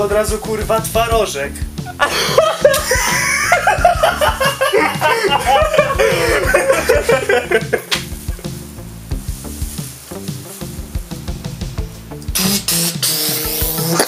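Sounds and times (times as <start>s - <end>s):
background music: 0.0s - 14.0s
hearty laughter: 1.8s - 8.5s.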